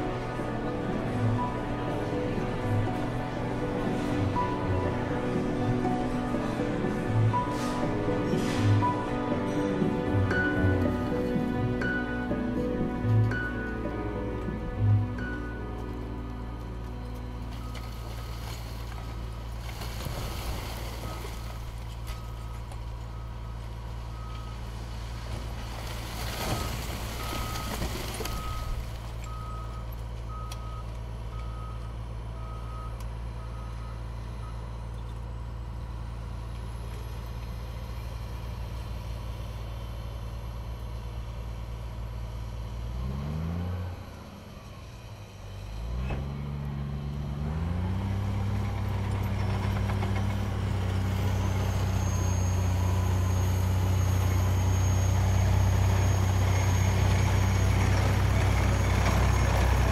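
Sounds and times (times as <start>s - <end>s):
diesel engines running: 0.0s - 59.9s
reversing alarm beeping: 21.0s - 24.8s, 26.4s - 35.8s, 50.8s - 59.9s.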